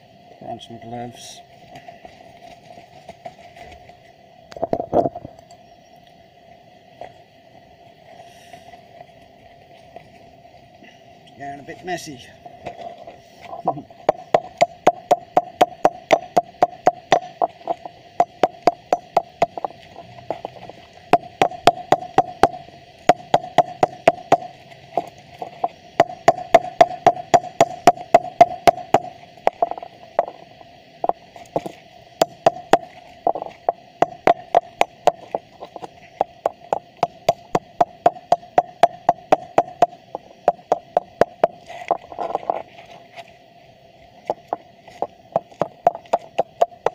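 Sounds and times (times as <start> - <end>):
steady hum: 0.0 - 46.9
hammer striking transformer: 14.1 - 19.7, 21.1 - 24.6, 26.0 - 30.4, 32.2 - 35.3.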